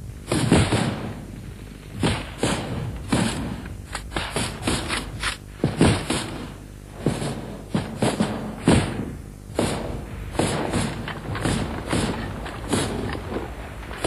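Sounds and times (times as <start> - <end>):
rifle single shots: 0.3 - 14.0.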